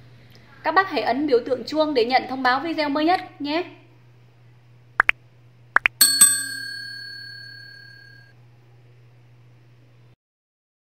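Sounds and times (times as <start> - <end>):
notification bell ding: 6.0 - 8.3.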